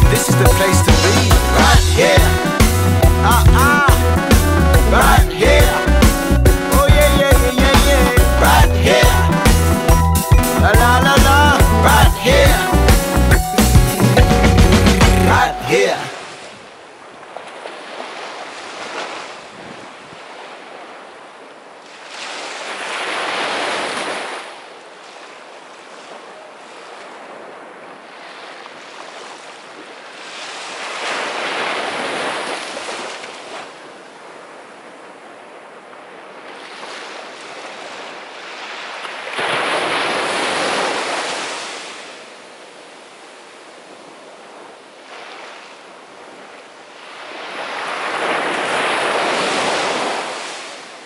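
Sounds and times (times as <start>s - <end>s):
sea waves breaking on beach: 15.1s - 51.0s.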